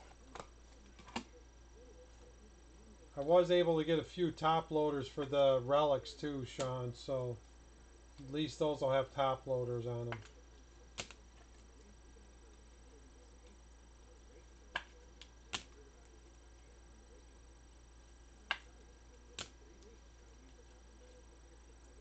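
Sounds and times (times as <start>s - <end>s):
faint low hum: 0.0s - 22.0s
trading cards clicking: 11.0s - 11.2s.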